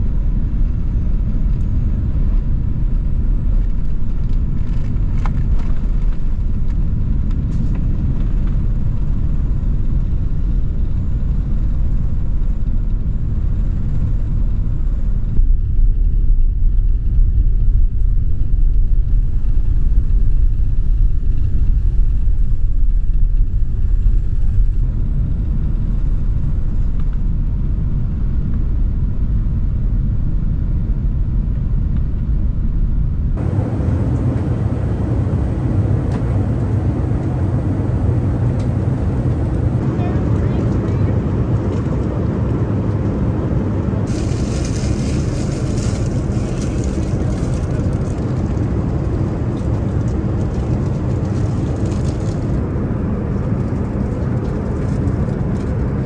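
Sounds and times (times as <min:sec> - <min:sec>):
jet engines rumbling: 0:00.0 - 0:56.0
rushing air: 0:33.4 - 0:40.2, 0:43.6 - 0:50.4.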